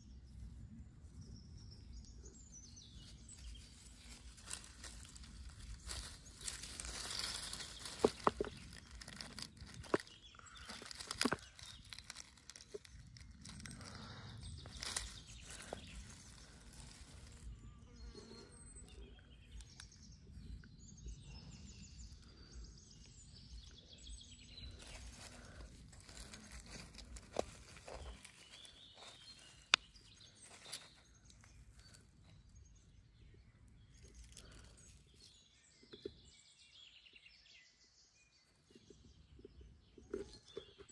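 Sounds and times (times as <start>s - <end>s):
birds chirping faintly: 0.0s - 40.9s.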